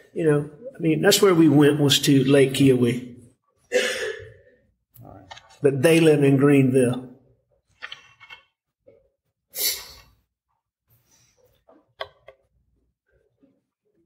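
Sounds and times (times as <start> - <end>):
small clicks and knocks: 7.7 - 8.6, 11.7 - 12.5.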